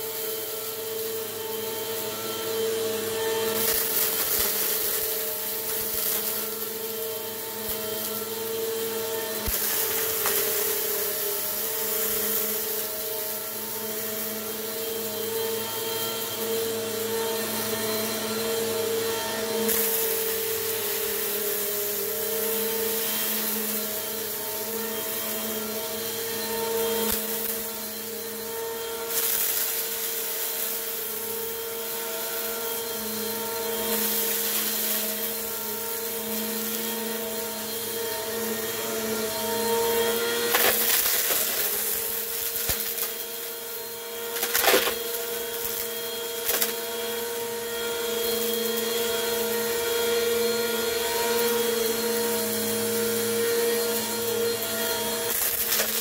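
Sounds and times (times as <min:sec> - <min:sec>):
vacuum cleaner running: 0:00.0 - 0:56.0
debris crunching in nozzle: 0:40.4 - 0:43.6, 0:55.2 - 0:56.0.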